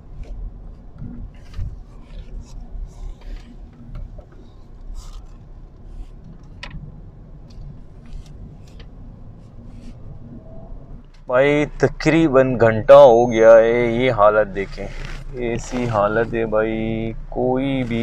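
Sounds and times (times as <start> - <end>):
car road and engine rumble: 0.0 - 18.0
rubbing and scraping noises: 0.2 - 6.5, 7.5 - 10.2, 14.2 - 18.0.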